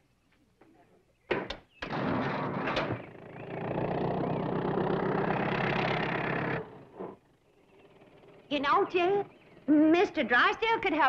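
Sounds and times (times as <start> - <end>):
sharp clunks: 1.3 - 3.1
truck engine starting and running: 1.9 - 10.3.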